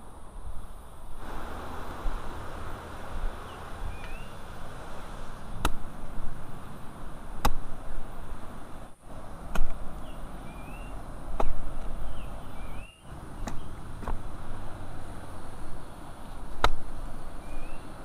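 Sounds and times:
small bird chirping: 3.4s - 4.4s, 10.0s - 13.8s, 17.4s - 18.0s.

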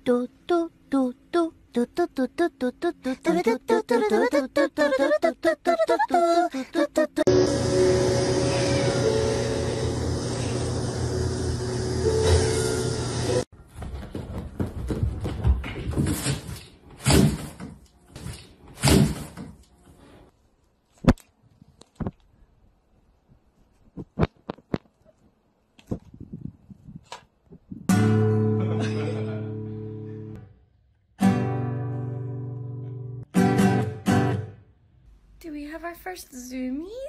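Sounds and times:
guitar chords ringing: 7.3s - 13.4s, 31.2s - 34.5s.

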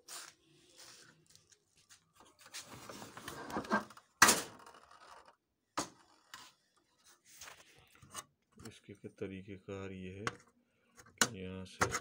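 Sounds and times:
plastic rustling and scraping: 0.0s - 4.1s.

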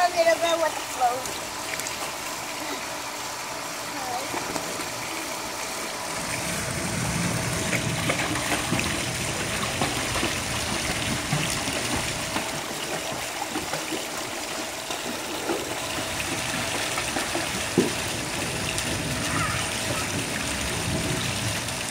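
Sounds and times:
pool water lapping and splashing: 0.0s - 21.9s.

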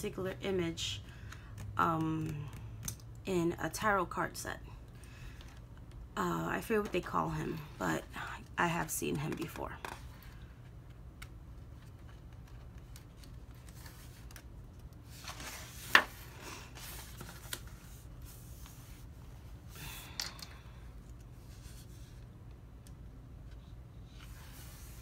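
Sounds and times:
paper pages rustling: 11.2s - 19.1s.

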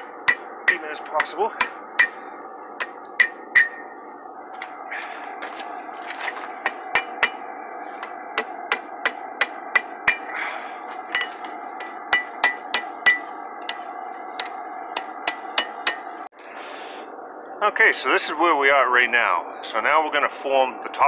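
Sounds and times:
hammer striking iron on anvil: 0.0s - 4.0s, 6.6s - 10.3s, 11.0s - 16.2s
steady background noise: 0.0s - 21.0s.

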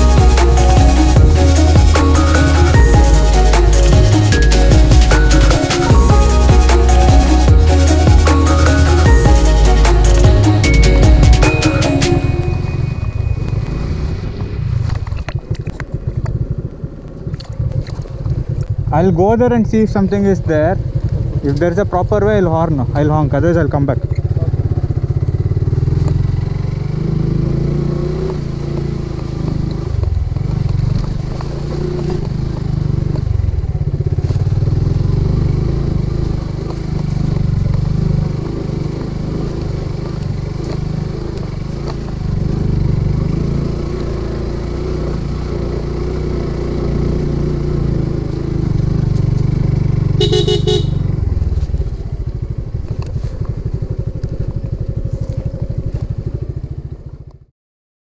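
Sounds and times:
motorcycle engine running: 0.0s - 57.5s
motorcycle horn: 50.0s - 51.3s.

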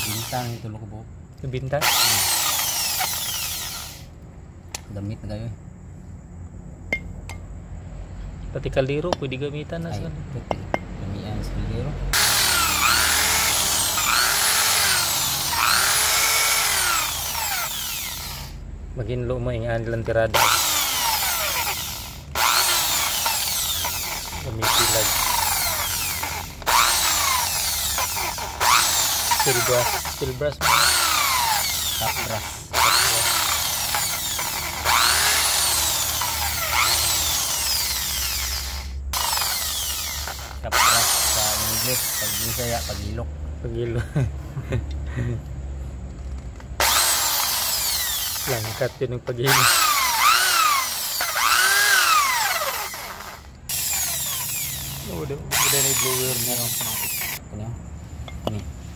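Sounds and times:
wire brush drill scraping metal: 0.0s - 0.8s, 1.7s - 4.1s, 12.2s - 18.6s, 19.9s - 43.2s, 46.8s - 57.4s.

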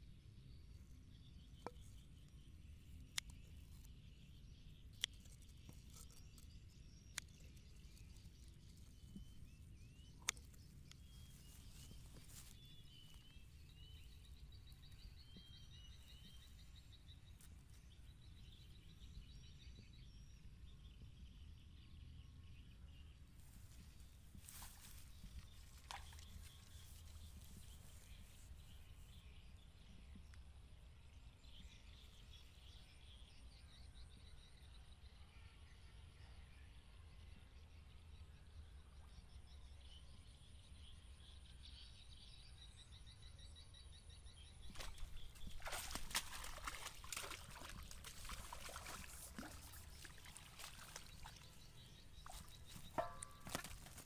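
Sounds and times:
faint bird chirps: 0.0s - 54.0s
fish splashing in water: 24.6s - 27.7s, 44.7s - 54.0s.

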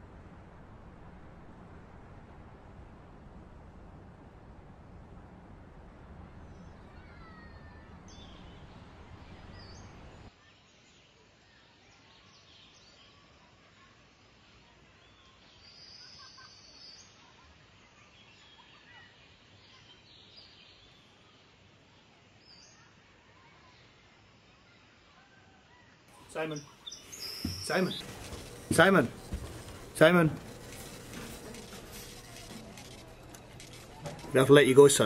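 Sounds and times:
small birds chirping: 26.2s - 35.0s.

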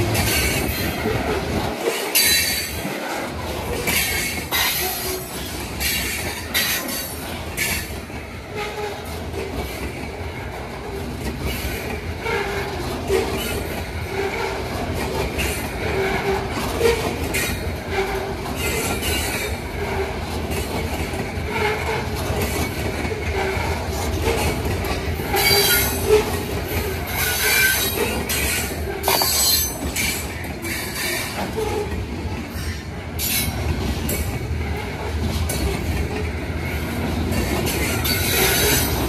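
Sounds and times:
train wheels rumbling on rails: 0.0s - 39.0s
wheels squealing and ringing: 1.9s - 2.8s, 21.5s - 32.0s, 37.4s - 39.0s.

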